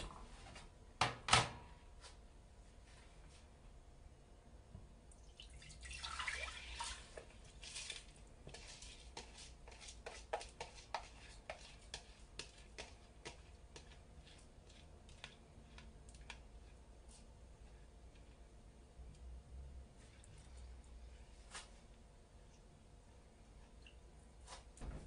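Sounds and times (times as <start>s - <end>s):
bowl tapped and scraped: 8.5s - 16.4s.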